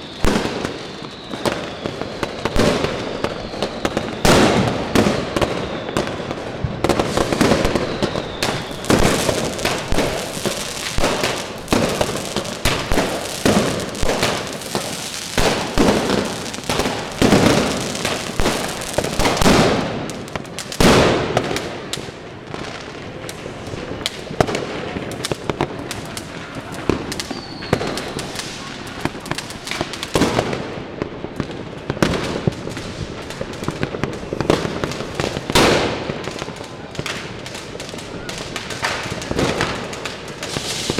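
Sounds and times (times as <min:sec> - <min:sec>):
firecrackers and fireworks banging: 0:00.0 - 0:40.9.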